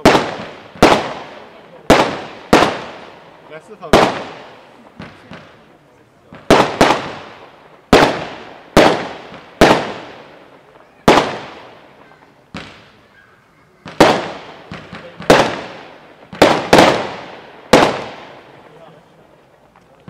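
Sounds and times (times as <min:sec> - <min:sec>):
firework bangs with echo: 0:00.0 - 0:20.0.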